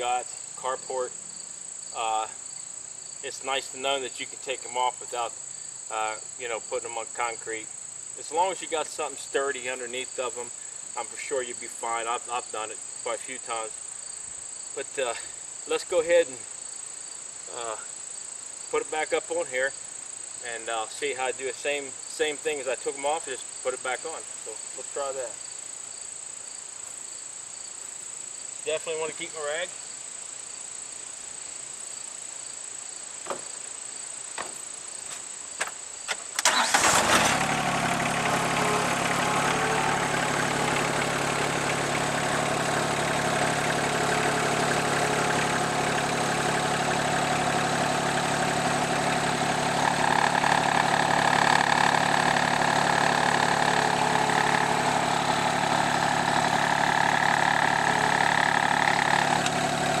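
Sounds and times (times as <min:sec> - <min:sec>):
crickets chirping: 0:00.0 - 1:00.0
diesel engine starting and idling: 0:36.4 - 1:00.0.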